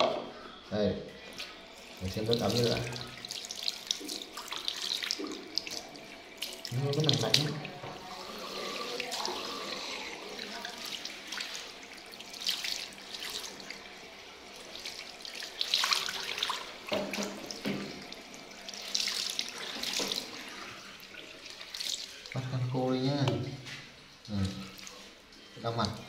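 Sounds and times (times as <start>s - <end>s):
tap water running: 1.2s - 26.0s
water splashing over hands: 10.4s - 13.6s, 14.8s - 20.5s.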